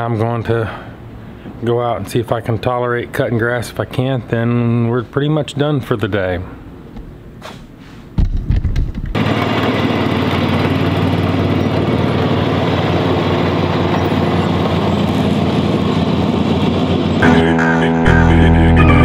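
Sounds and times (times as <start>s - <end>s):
lawn mower engine running: 9.1s - 19.0s
music: 17.2s - 19.0s.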